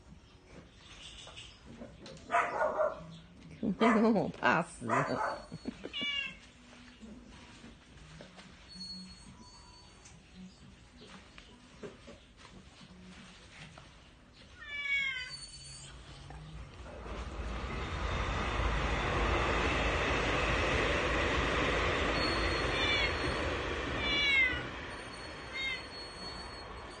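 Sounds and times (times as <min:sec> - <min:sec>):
cat meowing: 0:05.2 - 0:06.4, 0:14.6 - 0:15.4, 0:22.7 - 0:23.4, 0:24.0 - 0:24.7, 0:25.5 - 0:25.9
loud steady rushing noise: 0:16.7 - 0:27.0.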